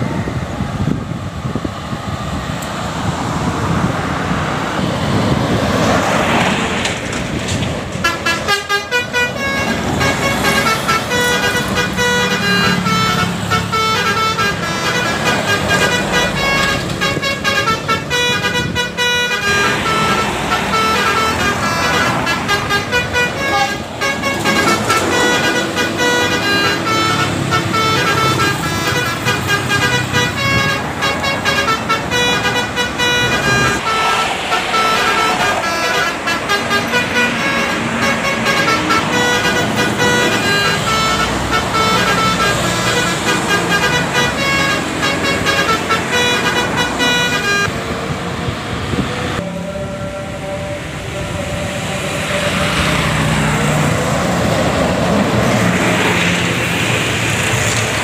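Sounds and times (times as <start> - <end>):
traffic passing: 0.0 - 58.0
bus horn playing melody: 7.9 - 58.0.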